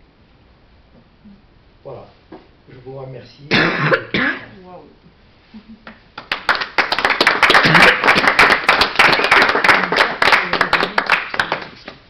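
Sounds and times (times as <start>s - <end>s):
audience applauding: 6.2s - 12.0s.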